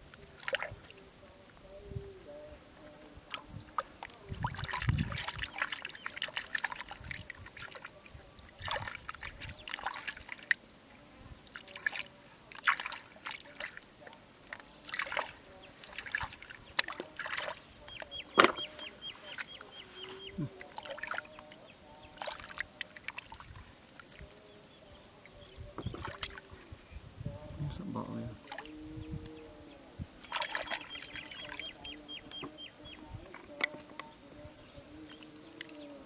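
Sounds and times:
water trickling: 0:02.7 - 0:36.0
hands squelching in wet mud: 0:11.6 - 0:13.8.

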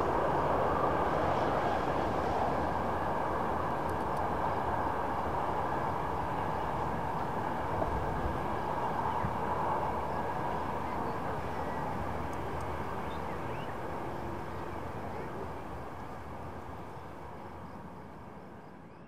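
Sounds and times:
moving train running noise: 0:00.0 - 0:18.9.

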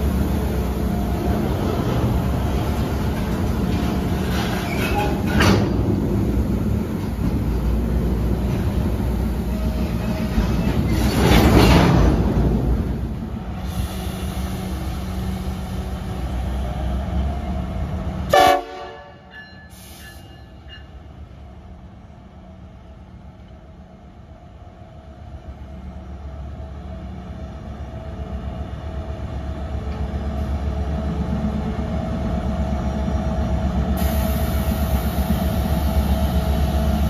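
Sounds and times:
diesel train rumbling: 0:00.0 - 0:37.0
train horn blast: 0:18.3 - 0:19.3.

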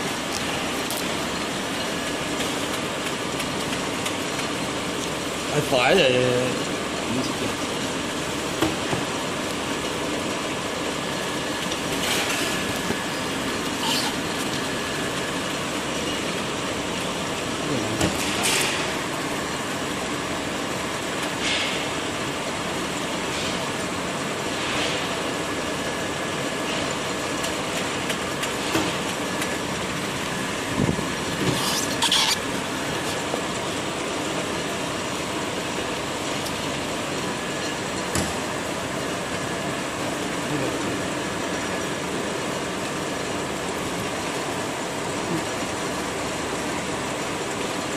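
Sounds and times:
wrapping machine whirring: 0:00.0 - 0:21.3.

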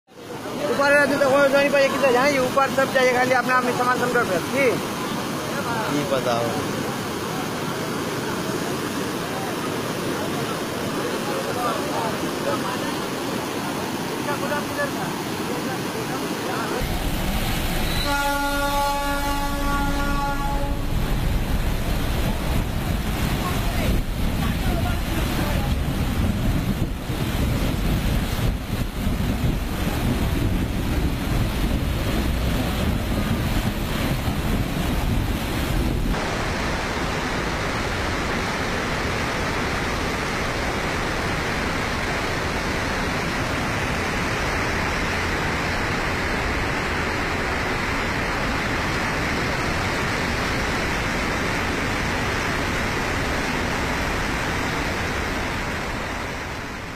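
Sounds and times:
steady rushing noise: 0:00.1 - 0:56.9
low rumble: 0:16.8 - 0:36.1
wind buffeting microphone: 0:19.7 - 0:36.3.

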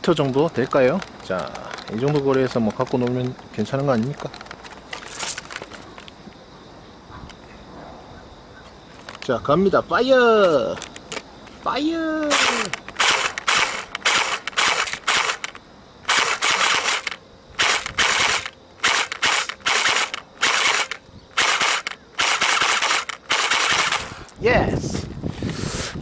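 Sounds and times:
electric airsoft gun firing bursts: 0:12.3 - 0:24.3.

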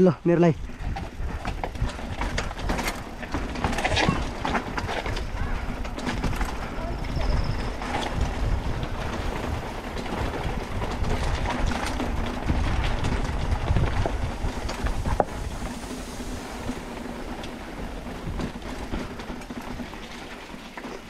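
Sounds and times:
bicycle rattling and clicking: 0:00.0 - 0:21.0
low rumble: 0:05.8 - 0:19.7.

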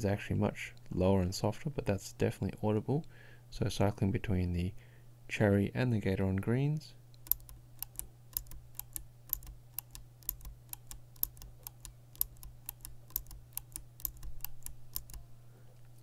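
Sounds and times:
mechanical keyboard switch clicks: 0:07.2 - 0:15.2.

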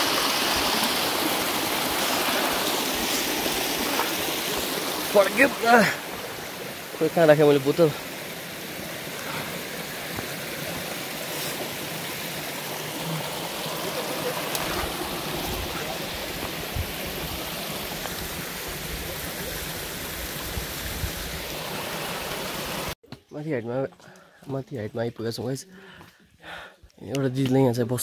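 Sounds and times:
mountain stream rushing: 0:00.0 - 0:23.0.

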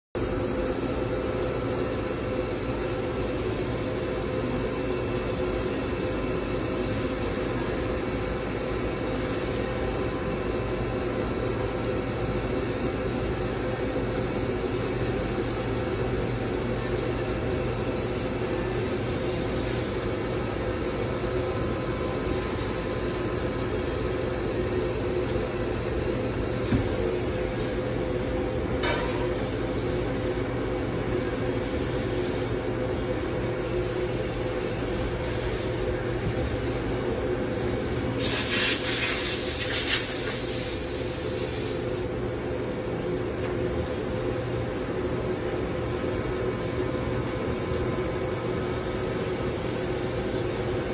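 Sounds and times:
short hissing rattle: 0:38.2 - 0:41.8.

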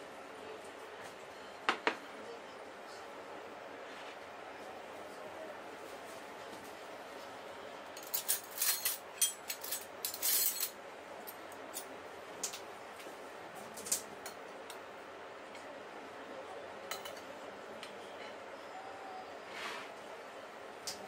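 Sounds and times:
metal spoons clinking on plates: 0:08.0 - 0:11.9, 0:16.9 - 0:17.3.

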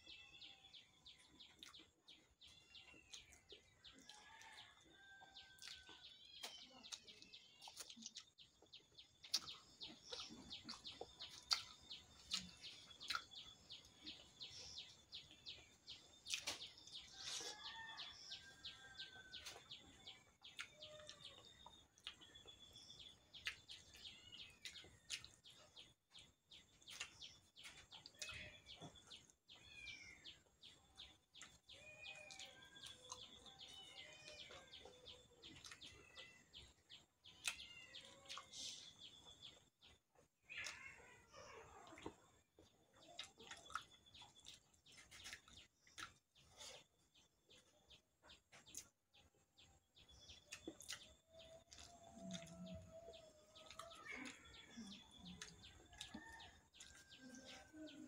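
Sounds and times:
person chewing: 0:06.9 - 0:14.4, 0:23.2 - 0:24.0, 0:35.5 - 0:35.8, 0:41.9 - 0:46.9, 0:50.4 - 0:52.8
birds chirping: 0:37.3 - 0:42.1, 0:49.7 - 0:58.0.

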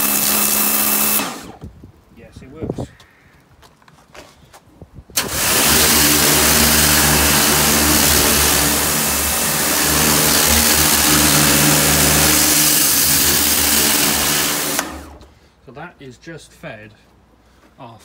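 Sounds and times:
pressure washer motor hum: 0:00.0 - 0:01.6, 0:05.2 - 0:15.4
water jet hissing: 0:05.2 - 0:15.3.

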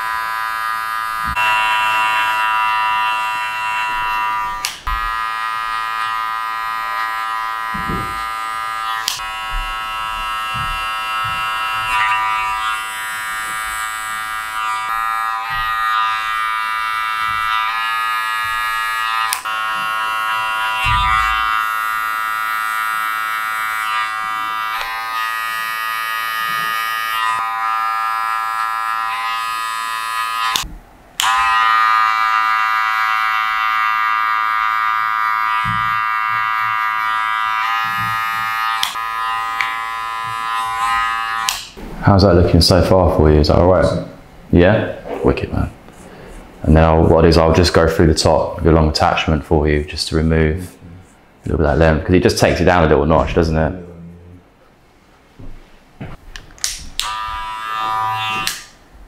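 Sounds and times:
electric hair clippers buzzing: 0:00.0 - 0:41.8, 0:56.0 - 0:58.9.

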